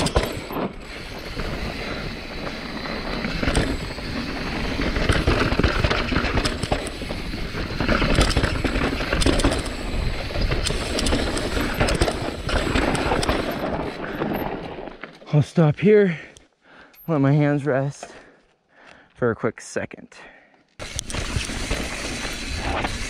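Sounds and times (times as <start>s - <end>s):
tires grinding over rock: 0.0s - 14.7s, 20.8s - 23.0s
bike chain and frame rattling: 0.0s - 15.1s, 20.8s - 23.0s.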